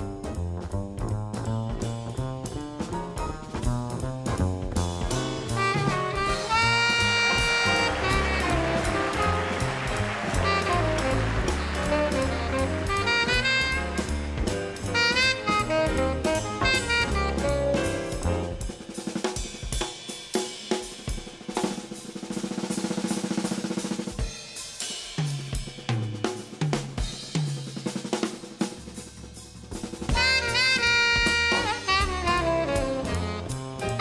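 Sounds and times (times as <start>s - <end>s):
upright bass: 0.0s - 18.7s
jazz drum kit solo: 0.0s - 34.0s
tenor saxophone: 5.4s - 18.3s, 30.2s - 34.0s.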